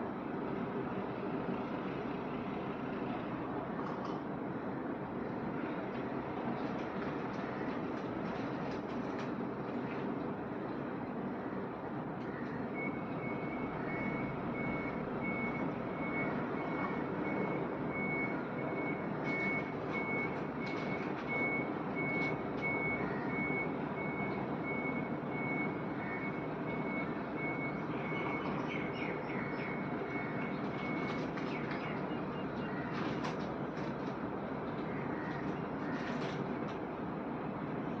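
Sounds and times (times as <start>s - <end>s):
reversing alarm beeping: 12.7s - 33.0s.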